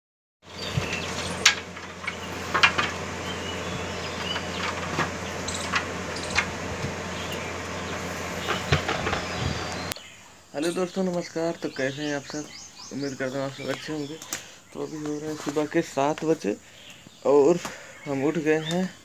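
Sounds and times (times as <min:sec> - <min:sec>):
mosquito net rustling: 0:00.5 - 0:10.0
background hiss and low hum: 0:00.5 - 0:19.0
bamboo poles knocking together: 0:00.7 - 0:07.1, 0:08.4 - 0:09.9.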